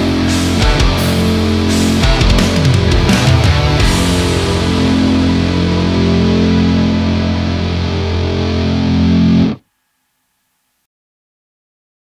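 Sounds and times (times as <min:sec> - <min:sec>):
distorted electric guitar chord: 0:00.0 - 0:09.7.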